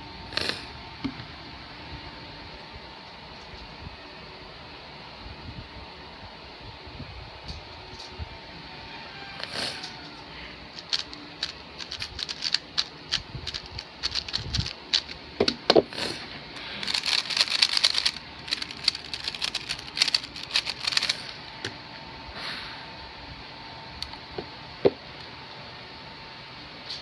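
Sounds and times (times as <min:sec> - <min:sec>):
speedcube plastic clicking: 0:10.8 - 0:15.6, 0:16.8 - 0:21.2.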